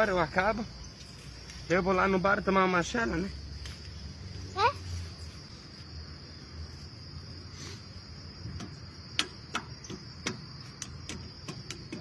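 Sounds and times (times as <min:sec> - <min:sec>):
high insect drone: 0:00.0 - 0:12.0
dry grass snapping and crackling: 0:03.4 - 0:05.4.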